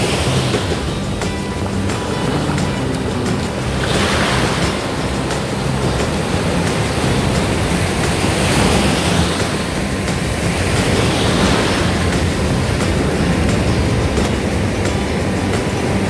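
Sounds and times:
ocean surf washing in: 0.0 - 16.0.

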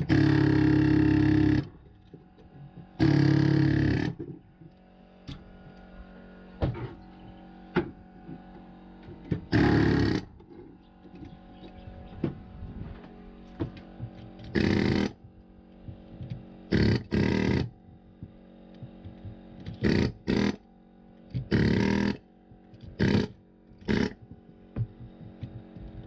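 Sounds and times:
power tool rattling blasts: 0.0 - 1.7, 3.0 - 4.2, 9.5 - 10.3, 14.4 - 15.2, 16.7 - 17.8, 19.6 - 20.6, 21.4 - 22.2, 22.9 - 24.2.

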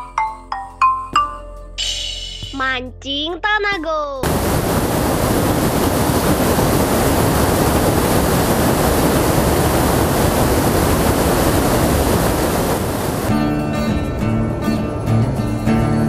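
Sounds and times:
river water rushing over weir: 4.2 - 13.3.

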